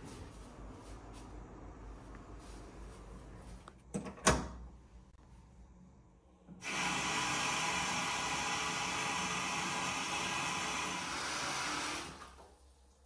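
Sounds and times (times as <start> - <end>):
water running from bathtub faucet: 6.6 - 13.0.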